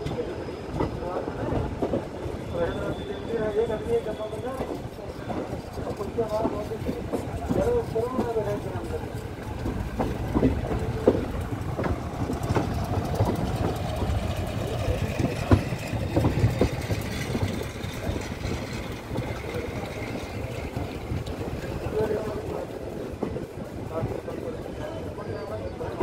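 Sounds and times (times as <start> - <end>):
train wheels rumbling: 0.0 - 26.0
wheels knocking on rail joints: 4.3 - 24.6.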